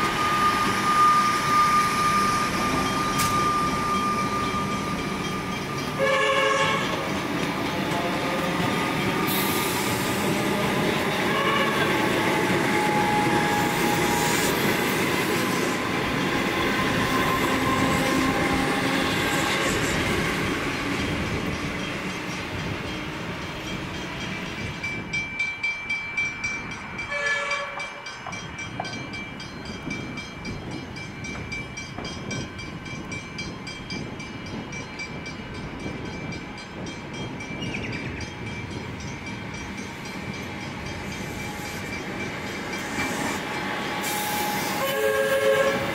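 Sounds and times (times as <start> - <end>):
electric train passing: 0.0 - 45.9
train horn tone: 5.9 - 7.0, 10.4 - 14.3, 27.0 - 28.0, 44.0 - 45.9.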